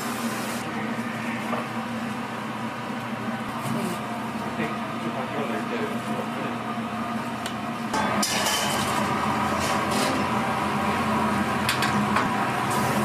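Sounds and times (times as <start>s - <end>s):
oil sizzling in a deep fryer: 0.0s - 4.5s, 6.8s - 13.0s
machine hum: 0.0s - 13.0s.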